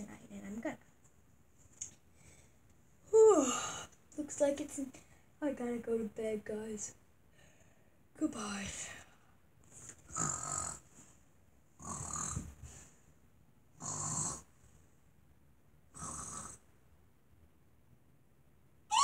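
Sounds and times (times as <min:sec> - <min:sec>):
girl fake-snoring: 0:10.1 - 0:10.9, 0:11.8 - 0:12.6, 0:13.8 - 0:14.5, 0:15.9 - 0:16.7.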